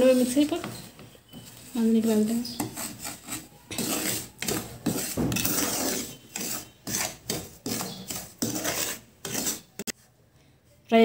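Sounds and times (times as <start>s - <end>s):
spatula scraping grains in pan: 0.0s - 9.9s.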